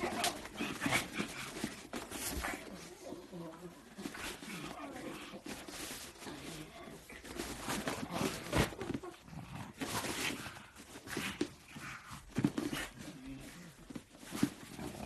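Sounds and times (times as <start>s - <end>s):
dogs growling and snorting: 0.0s - 15.0s.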